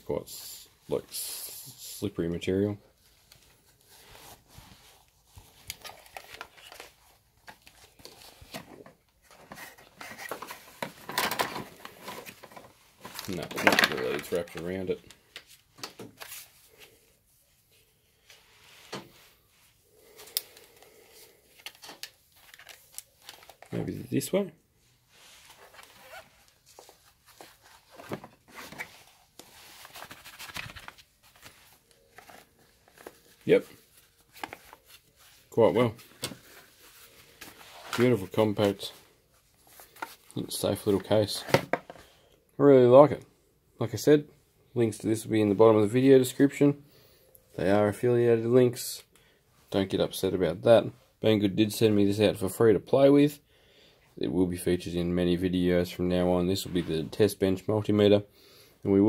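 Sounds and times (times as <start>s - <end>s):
fabric pouch rustling and crinkling: 16.2s - 23.8s, 25.0s - 40.4s.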